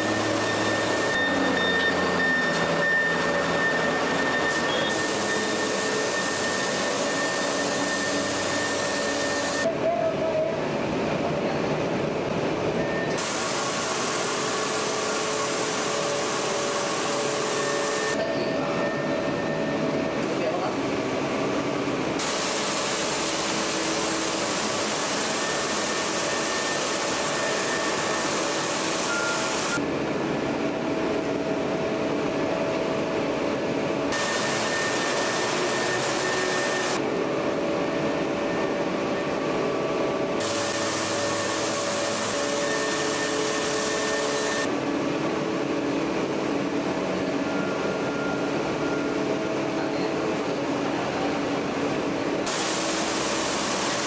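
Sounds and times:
machinery drone: 0:00.0 - 0:54.0
loud hiss: 0:04.5 - 0:09.7, 0:13.1 - 0:18.2, 0:22.2 - 0:29.8, 0:34.1 - 0:37.0, 0:40.4 - 0:44.7, 0:52.4 - 0:54.0.

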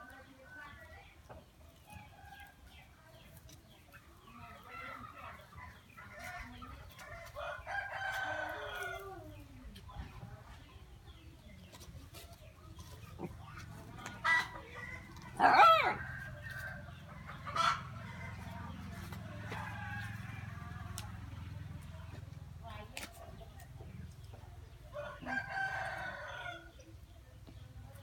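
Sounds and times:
chickens clucking: 0:00.0 - 0:28.0
rooster crowing: 0:25.0 - 0:26.7.

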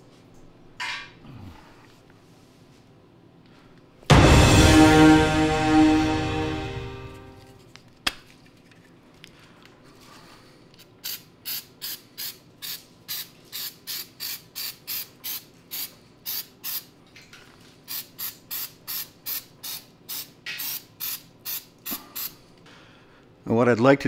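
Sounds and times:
spray can squirts: 0:11.0 - 0:16.9, 0:17.9 - 0:22.4.

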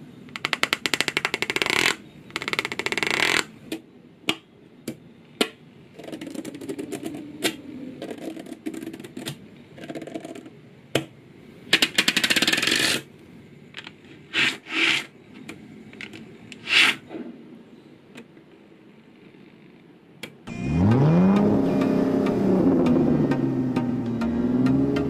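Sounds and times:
car engine revving: 0:20.5 - 0:25.0.

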